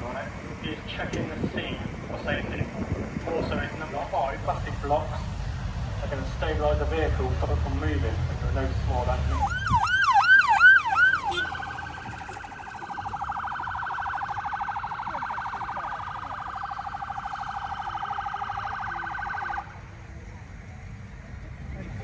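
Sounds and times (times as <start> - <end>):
electronic siren warble: 9.3 - 19.7
electronic siren whooping: 9.3 - 19.8.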